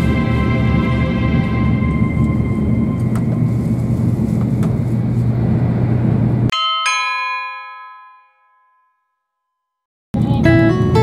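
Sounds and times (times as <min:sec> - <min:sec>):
train interior rumble: 0:00.0 - 0:06.5, 0:10.2 - 0:11.0
two-note ding-dong chime: 0:06.5 - 0:09.2.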